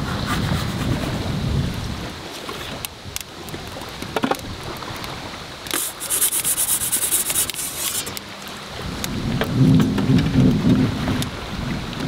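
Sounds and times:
metal pizza peel scraping: 5.8 - 8.2.

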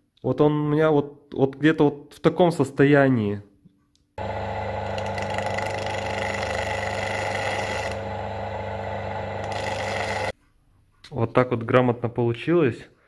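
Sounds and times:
bench grinder motor humming: 4.2 - 10.3.

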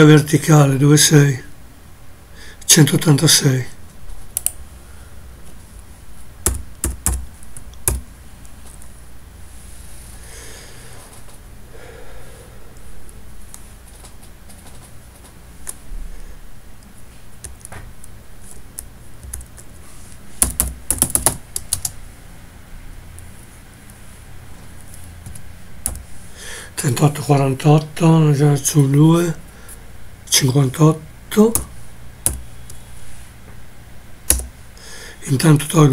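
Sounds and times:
typing on a keyboard: 6.4 - 8.1, 20.4 - 22.0.

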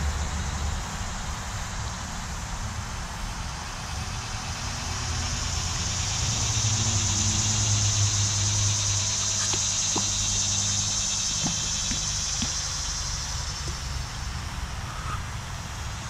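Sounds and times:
low engine hum: 0.0 - 16.0
high-pitched buzz: 3.4 - 16.0.

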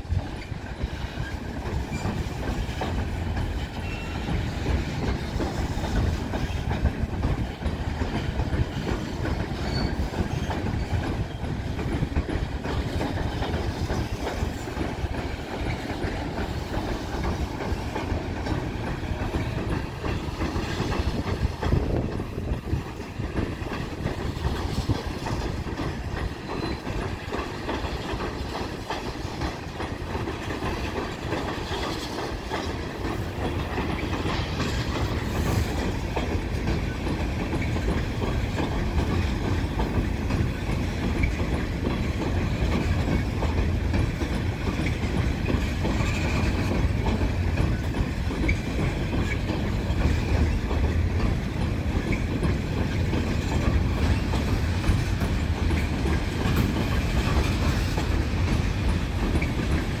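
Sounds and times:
train wheels rumbling on rail: 0.0 - 60.0.

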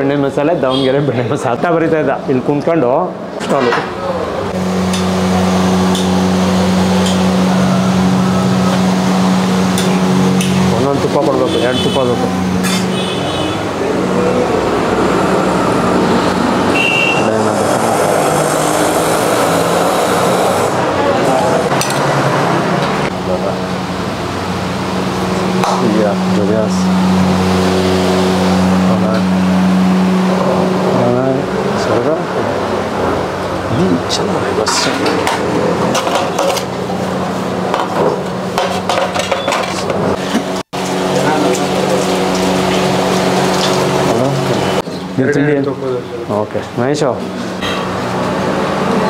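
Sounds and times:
road traffic: 0.0 - 49.0
vehicle engine running: 4.4 - 49.0
dishes and utensils clattering: 12.6 - 13.0, 34.6 - 36.8, 37.7 - 40.5
short high tone: 16.7 - 17.4.

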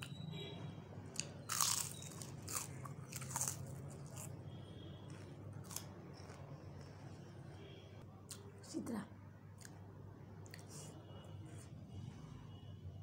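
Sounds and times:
chips crunching while chewed: 1.1 - 4.4, 5.1 - 6.6.

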